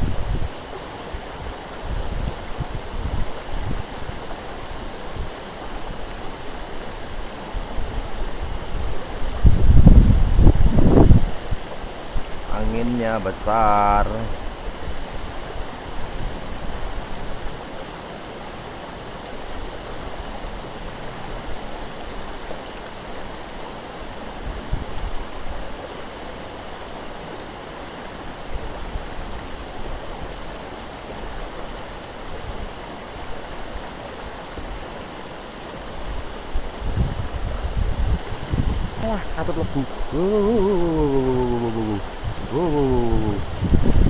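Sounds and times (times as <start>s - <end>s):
wind buffeting microphone: 0.0s - 0.5s, 7.9s - 11.6s, 36.7s - 39.0s, 42.0s - 44.0s
river water rushing: 0.0s - 9.5s, 11.4s - 12.6s, 13.2s - 44.0s.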